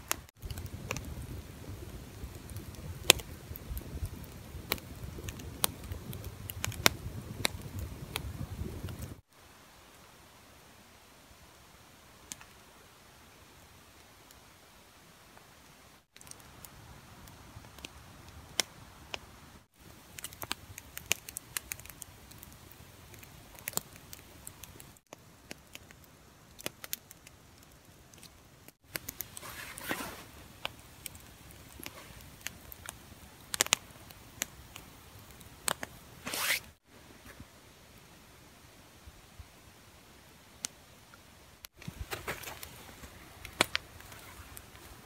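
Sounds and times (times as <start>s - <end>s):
sharp ticks and crackles: 0.0s - 9.2s, 19.8s - 29.4s, 30.6s - 36.0s
rustling: 28.2s - 33.8s, 35.6s - 37.5s, 41.7s - 45.0s.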